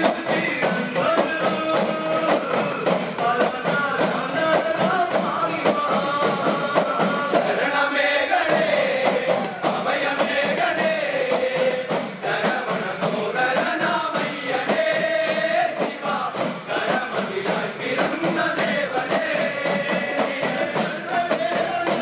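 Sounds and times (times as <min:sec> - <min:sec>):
hand drums beating: 0:00.0 - 0:22.0
male chorus singing: 0:00.0 - 0:22.0.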